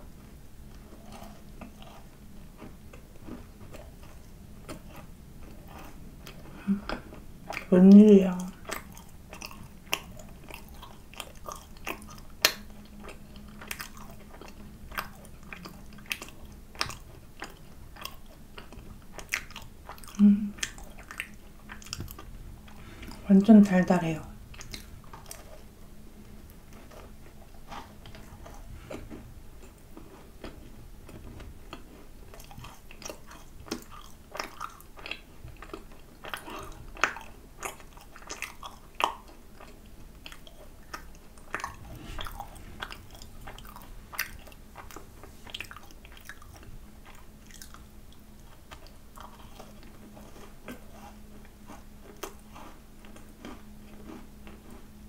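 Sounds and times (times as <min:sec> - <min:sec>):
chewing and crunching macaron: 0:00.6 - 0:55.0
wet mouth clicks: 0:11.9 - 0:12.8.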